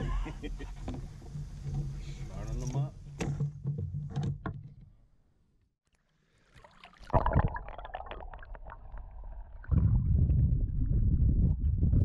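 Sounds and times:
water sloshing and gurgling: 5.8s - 12.0s
muffled underwater rumble: 8.7s - 12.0s.

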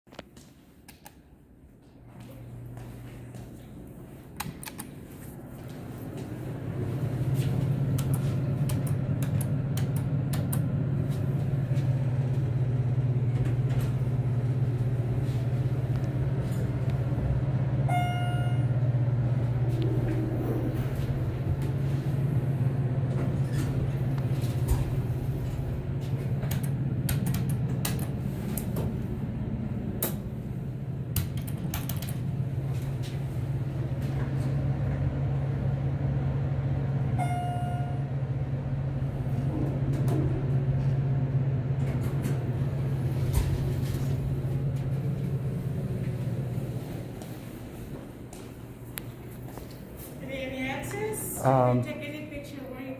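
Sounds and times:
elevator hum: 0.4s - 52.9s
clicks: 4.4s - 5.0s
electronic chime: 17.9s - 18.8s, 37.2s - 38.1s.

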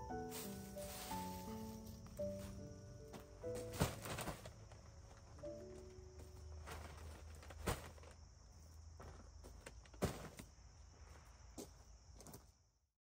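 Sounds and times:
paper bags crunching and rustling: 0.4s - 8.2s.

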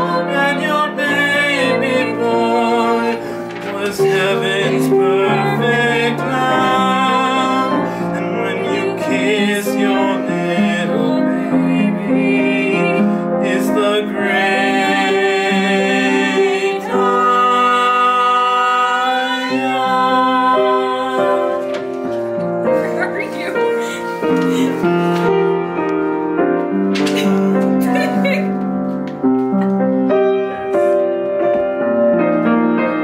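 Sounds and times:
man and woman singing: 0.0s - 22.2s, 22.8s - 25.1s
piano accompaniment: 0.0s - 33.0s.

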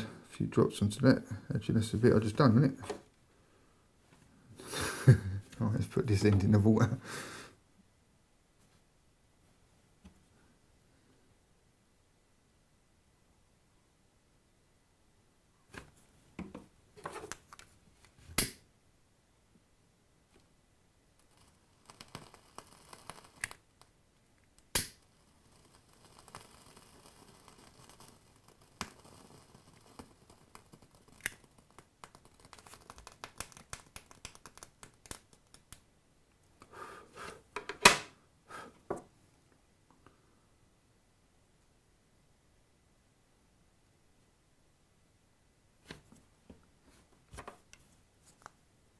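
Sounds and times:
hands handling small objects: 28.2s - 36.7s.

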